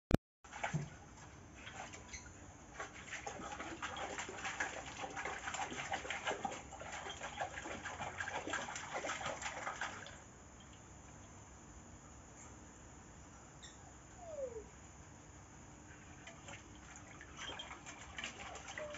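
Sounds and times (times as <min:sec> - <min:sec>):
dog splashing water: 0:00.5 - 0:10.3, 0:16.2 - 0:18.9.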